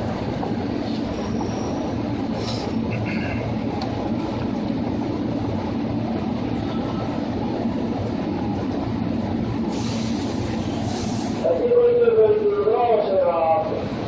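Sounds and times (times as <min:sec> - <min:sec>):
train wheels rumbling on rail: 0:00.0 - 0:14.0
hiss: 0:09.7 - 0:11.5.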